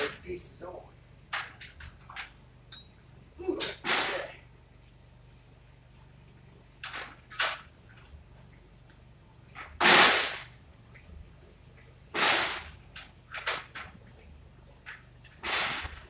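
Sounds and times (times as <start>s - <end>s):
sharp bangs: 3.6s - 4.4s, 9.8s - 10.6s, 12.1s - 12.8s, 15.4s - 16.0s.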